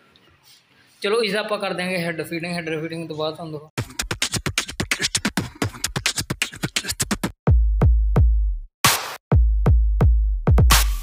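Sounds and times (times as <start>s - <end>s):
drum machine ticks: 3.8s - 8.3s
electronic music: 10.6s - 11.0s.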